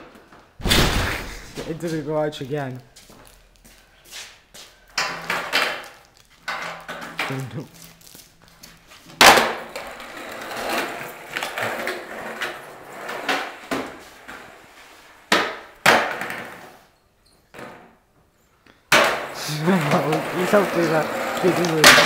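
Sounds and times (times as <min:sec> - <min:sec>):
skateboard wheels rolling: 0:04.9 - 0:07.4, 0:09.0 - 0:16.8, 0:18.9 - 0:22.0
skateboard slapping concrete: 0:09.2 - 0:13.8, 0:18.9 - 0:22.0.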